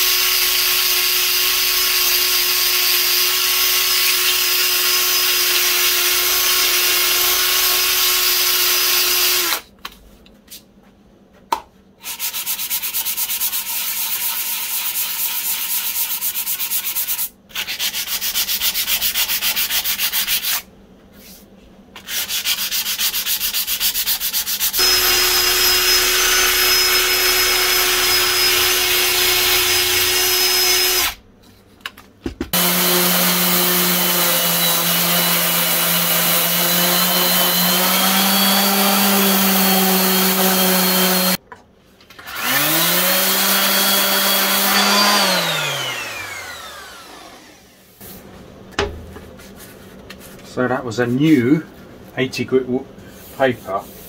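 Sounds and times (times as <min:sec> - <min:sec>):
hand sanding metal: 0:12.0 - 0:20.6, 0:22.0 - 0:31.1
drill wire brush on metal: 0:24.2 - 0:31.2
tool motor spinning: 0:24.8 - 0:31.2, 0:32.6 - 0:41.4, 0:42.2 - 0:47.8.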